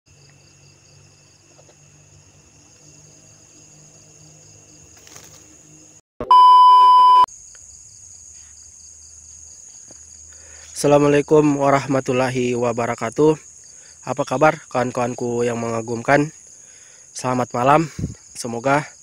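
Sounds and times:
insects chirring: 0.1 - 6.0, 7.3 - 19.0
loud steady test tone beep: 6.2 - 7.3.

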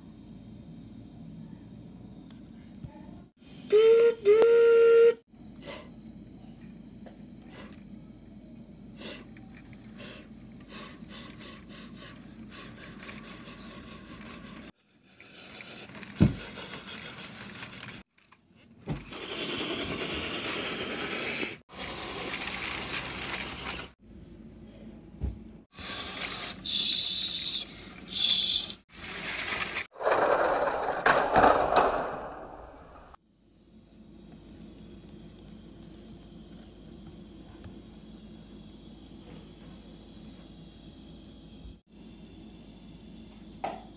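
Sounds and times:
toy train scraping on plastic track: 13.0 - 18.0, 19.1 - 24.0, 29.0 - 31.0
loud high hiss: 25.7 - 28.8.

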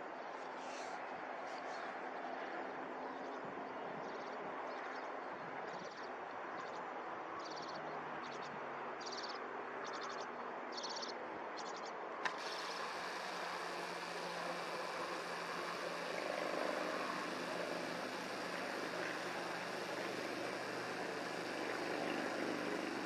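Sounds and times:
steady hum: 12.2 - 23.0.

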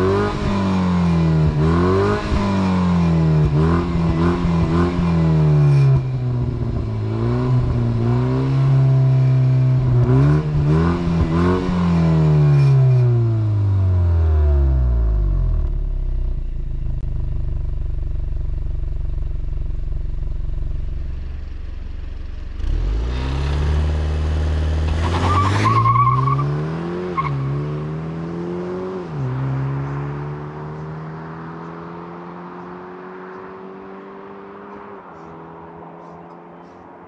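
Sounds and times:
car engine idling: 13.4 - 22.6.

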